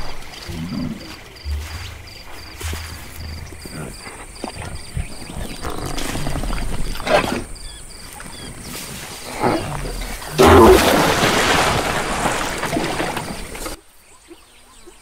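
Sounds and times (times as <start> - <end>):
rushing scrape over dirt: 8.3 - 13.8.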